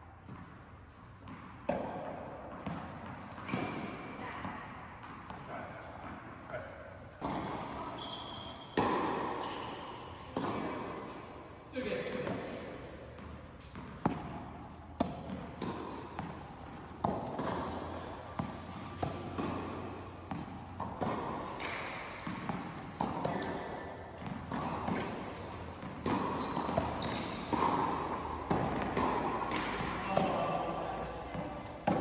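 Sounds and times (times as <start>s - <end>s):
tennis balls bouncing on hard court: 0.0s - 32.0s
tennis balls hit with rackets: 0.1s - 32.0s.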